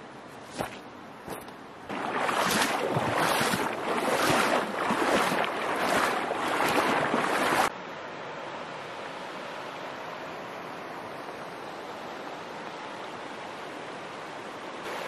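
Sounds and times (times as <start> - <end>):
river water rippling over stones: 0.4 - 7.7.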